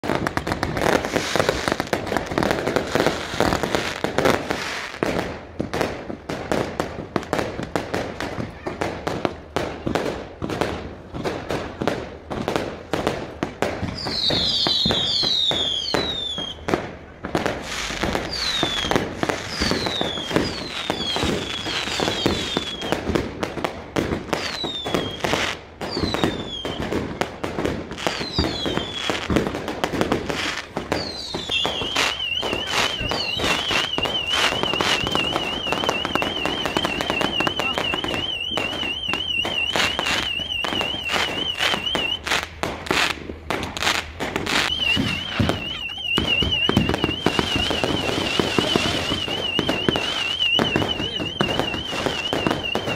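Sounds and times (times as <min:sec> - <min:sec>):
firework falling whistles: 0:00.0 - 0:05.2, 0:13.8 - 0:16.8, 0:17.4 - 0:23.2, 0:24.2 - 0:27.2, 0:27.9 - 0:52.9
fireworks bangs and crackles: 0:00.0 - 0:52.9
car alarm warbling: 0:31.8 - 0:42.2, 0:44.6 - 0:52.9.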